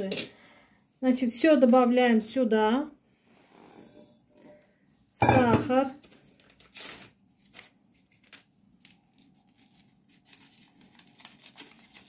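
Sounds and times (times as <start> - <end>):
paper crinkling: 6.0 - 12.0
paper sachet tearing: 6.4 - 12.0.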